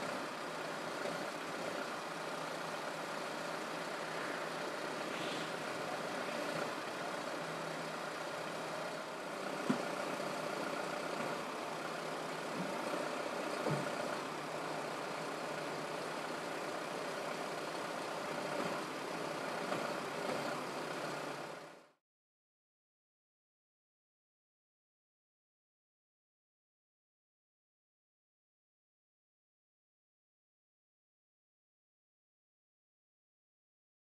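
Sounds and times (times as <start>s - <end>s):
diesel vehicles idling: 0.0s - 22.0s.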